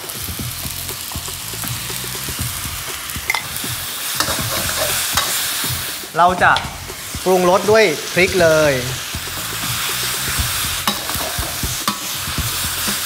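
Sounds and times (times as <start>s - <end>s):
food sizzling in a wok: 0.0s - 13.0s
metal spatula scraping wok: 3.0s - 8.4s, 9.3s - 13.0s
spatula clinking against wok: 3.3s - 3.6s, 4.2s - 5.5s, 10.8s - 13.0s.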